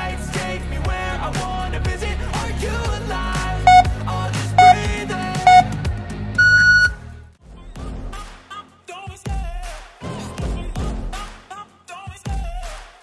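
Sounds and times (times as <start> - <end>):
pop music: 0.0 - 13.0
longer higher timer beep: 3.7 - 3.9, 4.6 - 4.9, 5.5 - 5.7, 6.4 - 7.0
timer beeps: 3.7 - 3.9, 4.6 - 4.9, 5.5 - 5.7, 6.4 - 7.0.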